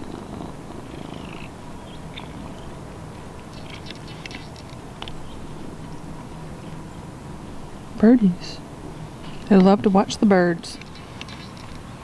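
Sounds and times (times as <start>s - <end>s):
cat purring: 0.0s - 2.8s.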